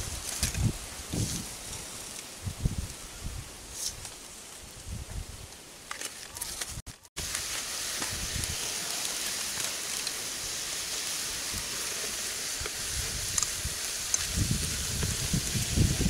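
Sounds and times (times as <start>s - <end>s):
meat sizzling in a pan: 7.2s - 16.0s.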